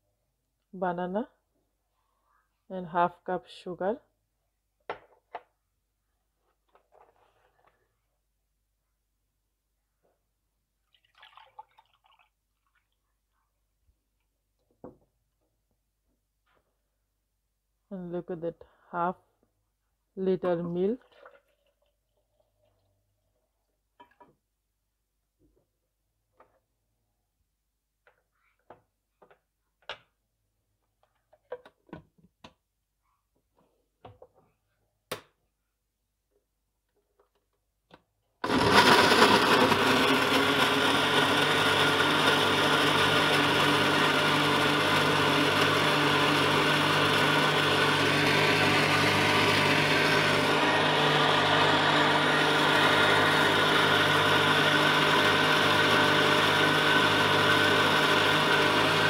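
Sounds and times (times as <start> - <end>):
electric blender running: 38.4 - 59.0.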